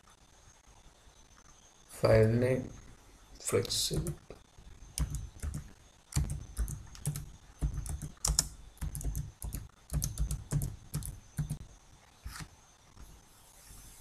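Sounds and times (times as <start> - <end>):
keyboard typing clicks: 4.9 - 11.6.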